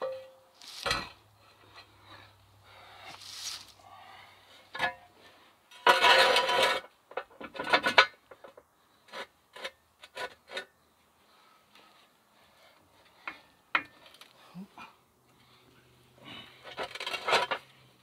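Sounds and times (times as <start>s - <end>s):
metal stand scraping over dirt: 0.6s - 2.2s, 5.7s - 10.7s, 16.6s - 17.8s.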